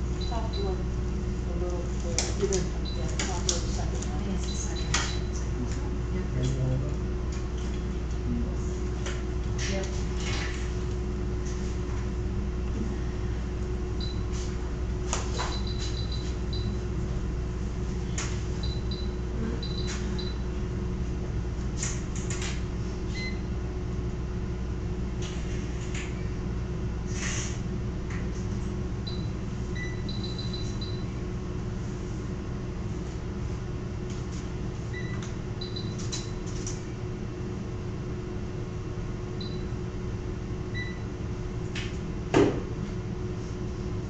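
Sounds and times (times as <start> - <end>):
low equipment hum: 0.0 - 44.0
high electronic monitor beeps: 15.5 - 16.8, 18.6 - 20.4, 29.0 - 31.1, 34.9 - 36.4.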